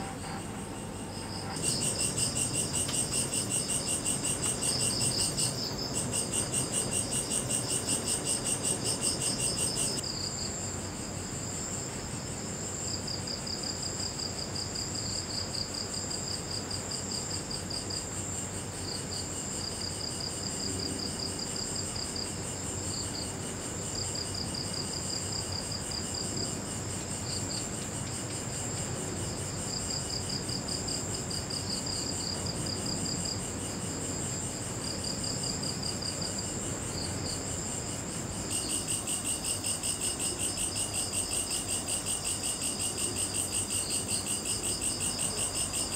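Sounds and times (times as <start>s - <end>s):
insect rapid pulsed calls: 0.0s - 10.4s
insect steady high trill: 0.0s - 11.8s, 12.8s - 45.9s.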